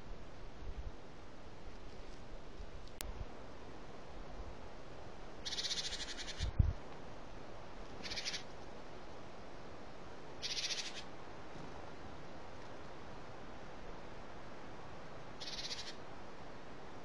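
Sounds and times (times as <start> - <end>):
hawk harsh chattering: 8.0 - 8.4.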